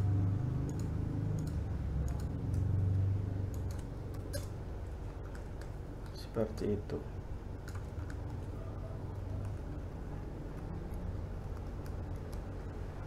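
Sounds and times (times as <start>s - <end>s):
low steady hum: 0.0s - 13.0s
mouse and keyboard clicks: 0.6s - 2.7s, 3.5s - 4.5s, 7.6s - 8.3s.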